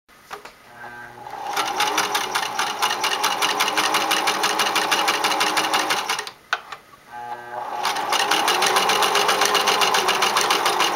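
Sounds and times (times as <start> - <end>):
sewing machine stitching: 1.2 - 6.3, 7.6 - 10.9.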